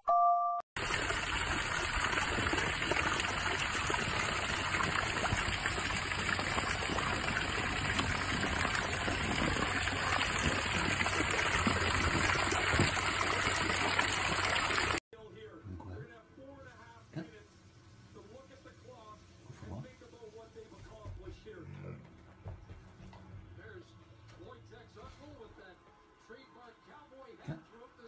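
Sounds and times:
running water rushing: 0.8 - 15.0.

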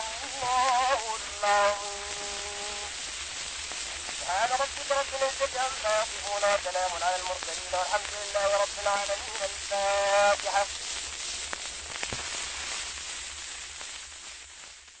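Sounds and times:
voice chanting: 0.0 - 2.9, 4.2 - 10.7
recording hiss and crackle: 0.0 - 15.0.

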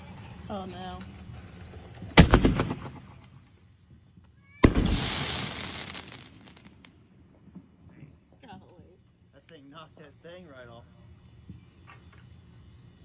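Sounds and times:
firework launch thump: 2.1 - 3.1, 4.6 - 6.8
firework bursting with loud bang: 2.1 - 3.2, 4.6 - 6.9
firework crackling: 4.6 - 6.9.

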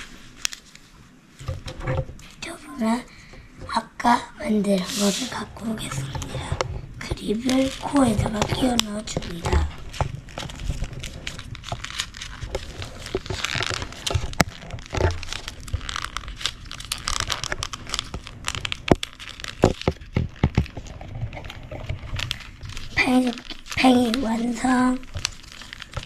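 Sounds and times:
small paper clicks: 0.0 - 0.8, 6.2 - 26.0
paper rustling and crinkling: 0.0 - 3.5, 4.4 - 26.0.

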